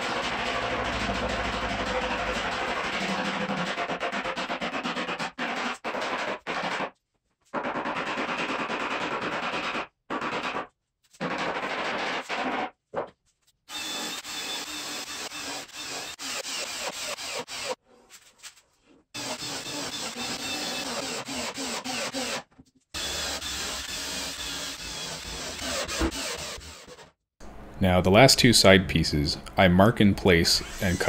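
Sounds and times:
rubbing and scraping on plywood: 0.7 - 12.7.

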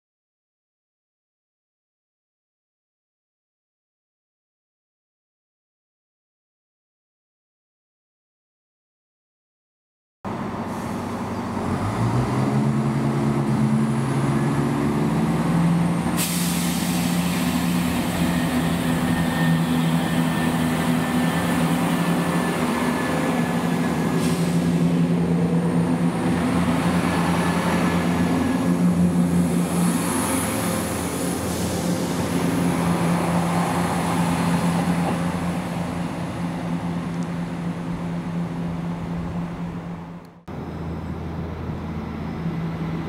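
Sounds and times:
train diesel engine running: 10.3 - 43.0.

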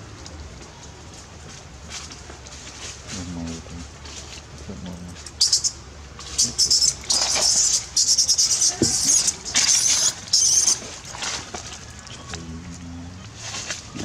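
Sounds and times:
baby monkey screaming: 5.4 - 10.8.

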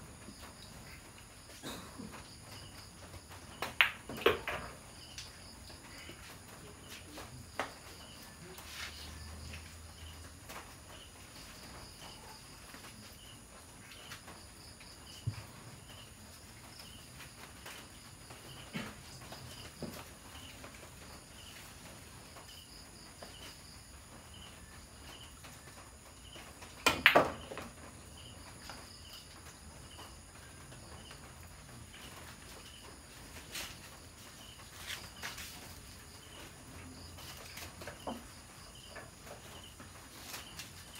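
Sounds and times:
insects chirping: 0.0 - 40.9
pool balls clacking: 3.6 - 4.9, 26.8 - 27.8.

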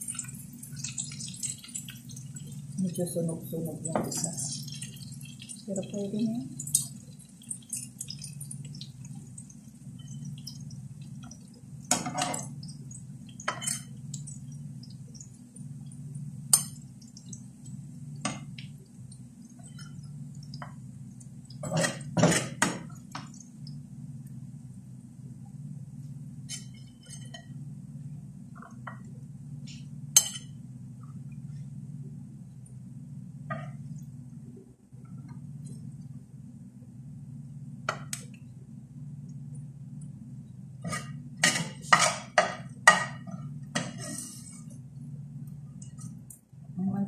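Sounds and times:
steady low hum: 0.0 - 47.0
utensils clinking on frying pan: 13.4 - 14.3.

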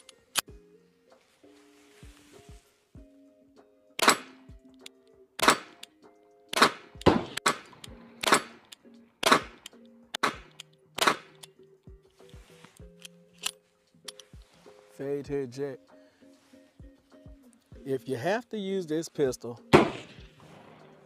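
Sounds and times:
background music: 0.0 - 21.0
pistol shots: 4.0 - 4.4, 5.4 - 5.8, 6.5 - 8.6, 9.2 - 11.5, 19.8 - 21.0.

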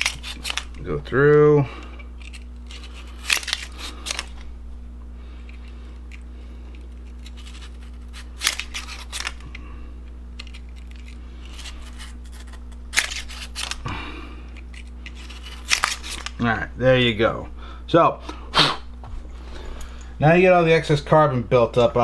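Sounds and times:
brush scraping metal cylinder: 0.0 - 1.0, 6.9 - 9.4, 10.4 - 13.8
steady low hum: 0.0 - 22.0.

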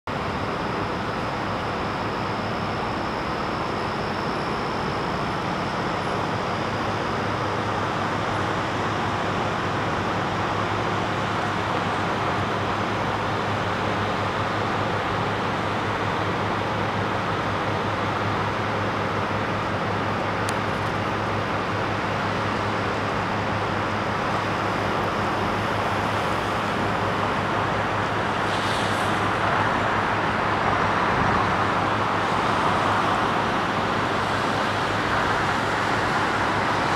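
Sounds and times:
city traffic noise: 0.1 - 36.9
constant low hum: 0.1 - 36.9
brief higher hiss: 28.4 - 29.2.

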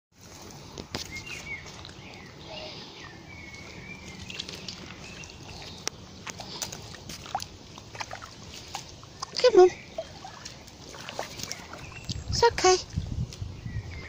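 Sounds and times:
dog paws on wet mud: 0.2 - 14.0.

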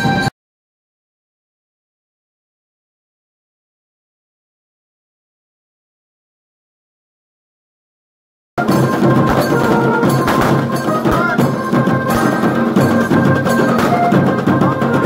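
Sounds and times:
drum band playing: 8.6 - 15.0
high held notes: 8.6 - 15.0.

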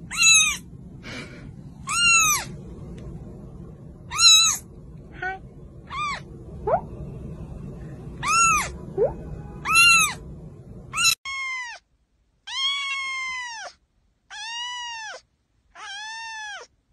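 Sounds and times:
kitten squeak: 0.1 - 0.6, 1.8 - 2.5, 4.1 - 6.8, 8.2 - 10.2, 10.9 - 11.8, 12.5 - 15.2, 15.8 - 16.7
kittens meowing: 0.1 - 0.6, 1.9 - 2.5, 4.1 - 4.6, 8.2 - 8.8, 9.6 - 10.2, 10.9 - 11.8, 12.5 - 15.2, 15.8 - 16.7.

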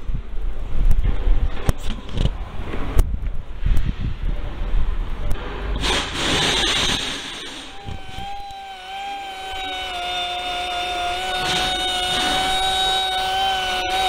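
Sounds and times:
short hiss: 5.8 - 7.7
rotary polisher whining: 7.7 - 14.0.

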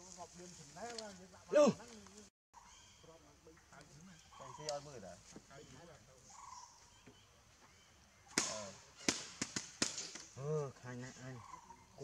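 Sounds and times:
sharp cracks: 8.3 - 10.4.

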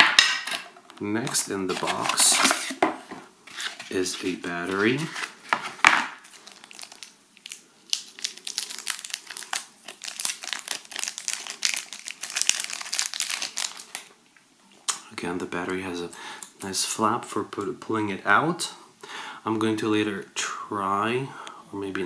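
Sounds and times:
plastic film crinkling: 3.5 - 14.1.

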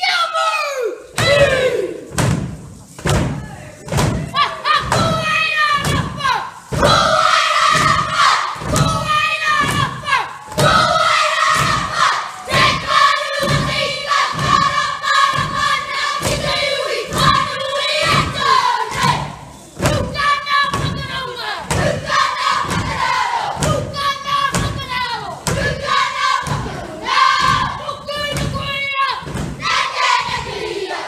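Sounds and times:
children chanting in unison: 4.4 - 31.0.

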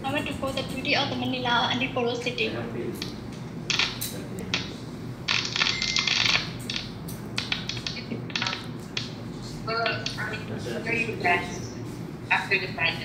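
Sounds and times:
sharp clicks and taps: 6.6 - 9.2.

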